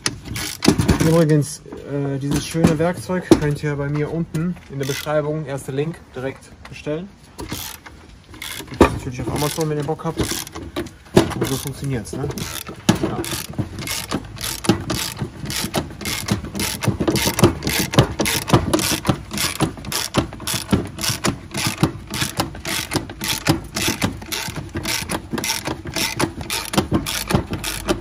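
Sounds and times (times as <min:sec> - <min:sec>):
ratchet wrench clicking: 0:00.0 - 0:01.2, 0:04.7 - 0:05.2, 0:07.4 - 0:10.6, 0:11.3 - 0:28.0.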